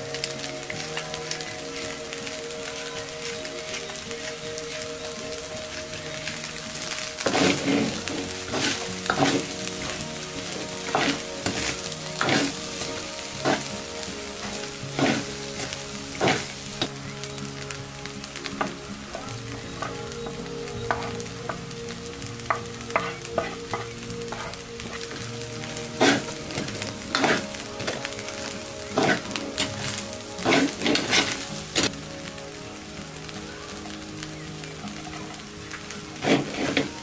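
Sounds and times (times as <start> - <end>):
rice sizzling in a wok: 0.0 - 37.0
metal spatula scraping a pan: 7.2 - 13.7, 14.3 - 16.6, 22.5 - 25.2, 26.0 - 28.1, 29.0 - 31.9, 36.2 - 36.9.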